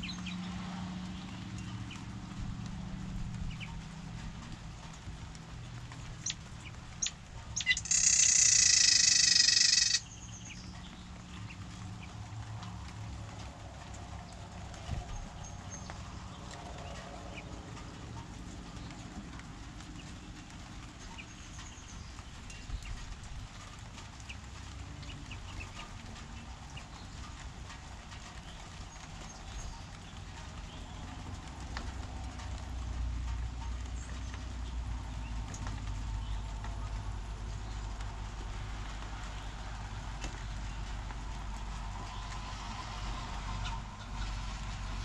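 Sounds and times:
rain dripping: 0.0 - 45.0
songbirds chirping: 0.0 - 45.0
bird trill: 7.0 - 10.6
steady low rumble: 9.8 - 45.0.

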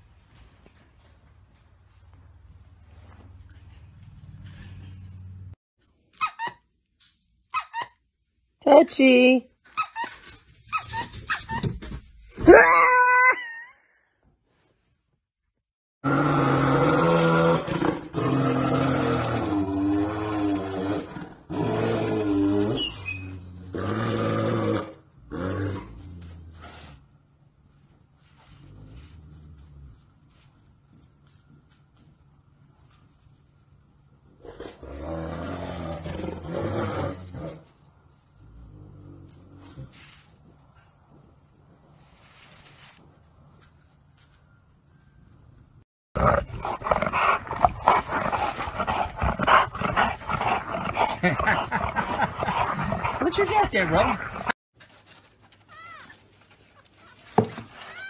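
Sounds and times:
dog growling: 46.2 - 54.6.

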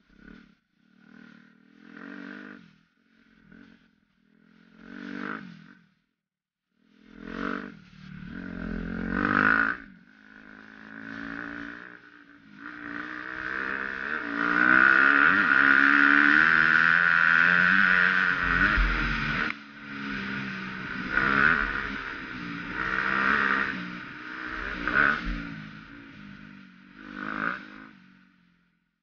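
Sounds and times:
dirt bike engine revving: 1.0 - 2.7, 3.4 - 5.8, 7.0 - 28.3
rushing noise: 17.3 - 26.5.

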